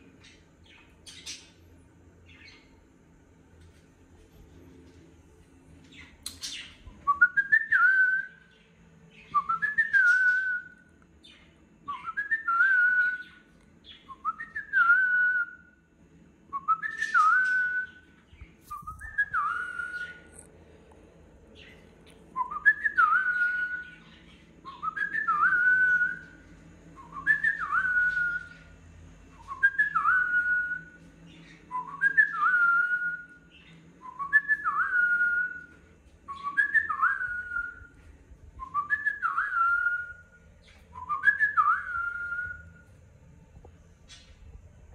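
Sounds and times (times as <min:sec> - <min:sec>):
cockatiel whistling: 0:18.8 - 0:20.4, 0:22.4 - 0:26.4, 0:38.6 - 0:42.7.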